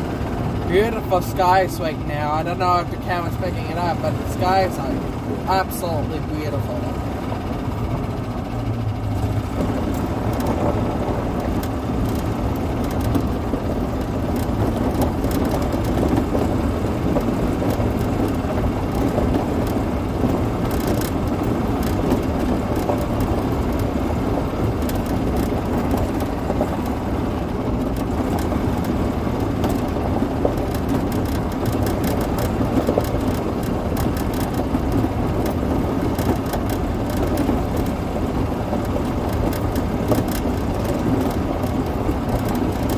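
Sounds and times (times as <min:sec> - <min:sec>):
golf cart driving: 0:00.0 - 0:42.9
small clicks and crackles: 0:09.6 - 0:42.9.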